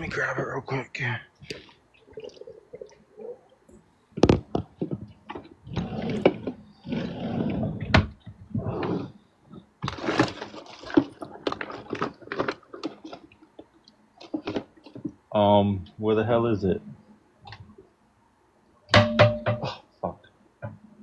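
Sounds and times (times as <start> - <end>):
rustling and shuffling: 1.4 - 15.3
sharp knocks: 18.9 - 19.7.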